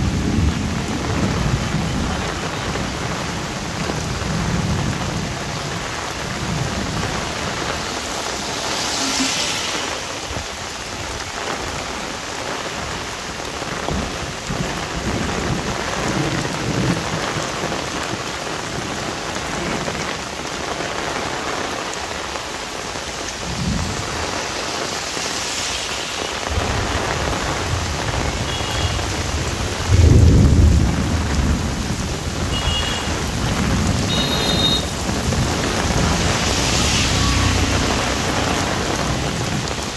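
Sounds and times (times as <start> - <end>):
heavy rain on umbrella: 0.0 - 39.9
thunder rumble: 26.4 - 39.9.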